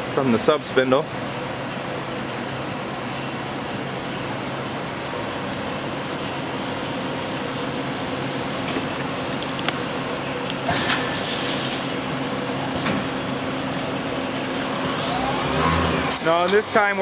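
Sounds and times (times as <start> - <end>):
coolant pouring hiss: 8.4 - 12.0
lathe machine hum: 11.9 - 17.0.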